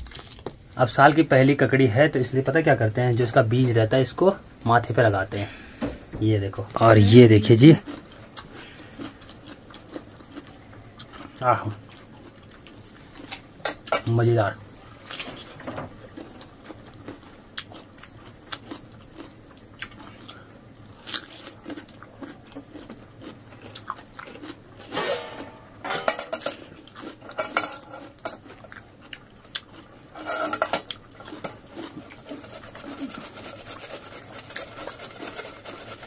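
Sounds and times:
metal dishes and utensils clinking: 0:24.8 - 0:28.4, 0:30.2 - 0:31.6.

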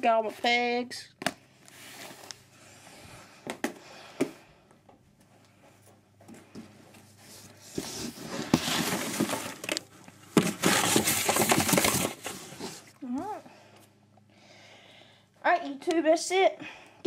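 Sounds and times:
cardboard crackling and crumpling: 0:07.7 - 0:13.0.

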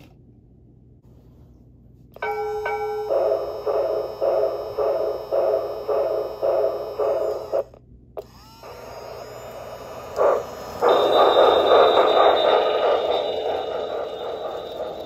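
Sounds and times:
model steam locomotive chuffing: 0:10.1 - 0:15.0
train wheels clattering on track: 0:10.2 - 0:15.0.

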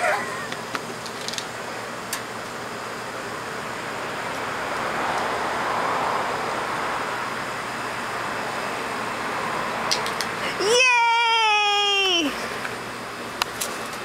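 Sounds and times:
passing vehicle traffic noise: 0:01.7 - 0:10.6.

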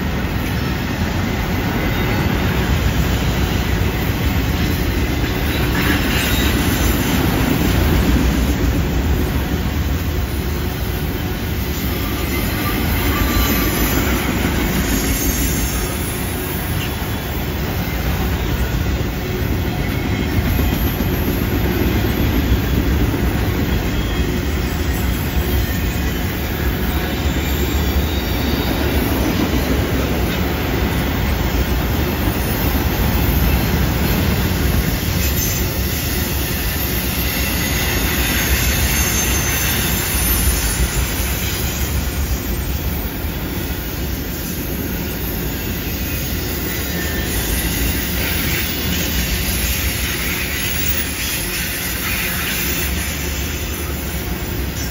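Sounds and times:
freight train wheels rumbling: 0:00.0 - 0:54.9
high-pitched wheel squeal: 0:11.6 - 0:19.0, 0:19.7 - 0:29.7, 0:32.0 - 0:54.9.

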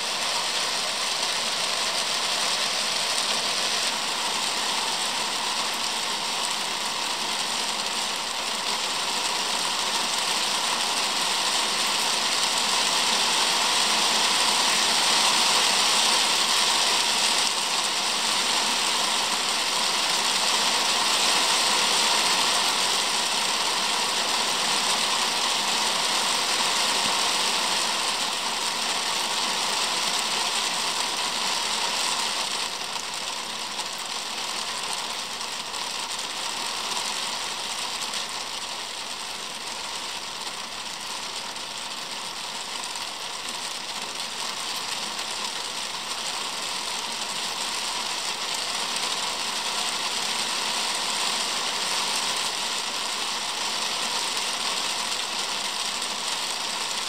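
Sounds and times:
rain on a wooden deck: 0:00.0 - 0:57.0.

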